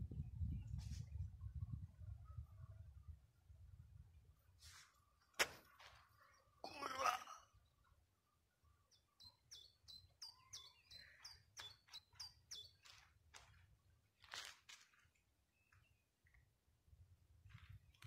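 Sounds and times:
bird chirping: 7.6 - 13.2.

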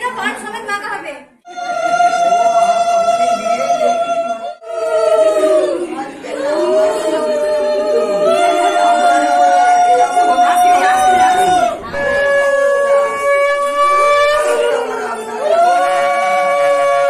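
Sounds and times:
conch shells blown in long notes: 7.9 - 17.0.

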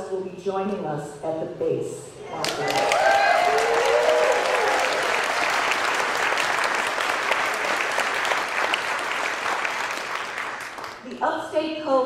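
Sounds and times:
audience applauding: 2.4 - 11.1.

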